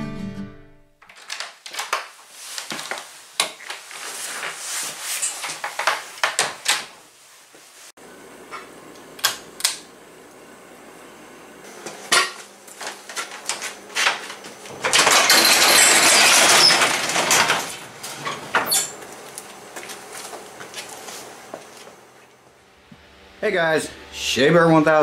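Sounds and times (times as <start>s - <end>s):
garage door rolling up tracks: 13.1s - 21.0s.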